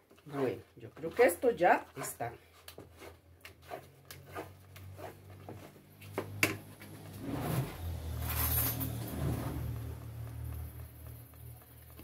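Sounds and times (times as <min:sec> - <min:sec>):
spoon scraping thick paste: 0:00.2 - 0:05.8.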